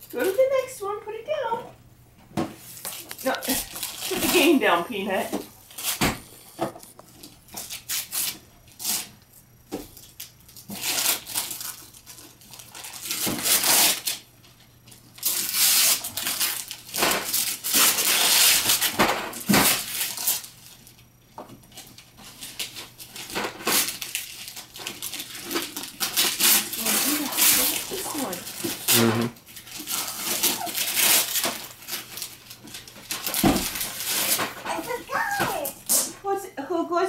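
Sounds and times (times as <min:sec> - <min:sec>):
wrapping paper ripping: 0:02.7 - 0:04.6, 0:07.6 - 0:09.1, 0:10.2 - 0:14.2, 0:15.2 - 0:20.8, 0:21.7 - 0:36.1.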